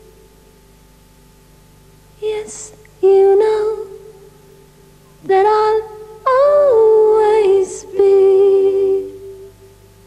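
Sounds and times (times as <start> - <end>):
woman singing long notes: 2.2 - 4.2, 5.2 - 9.6.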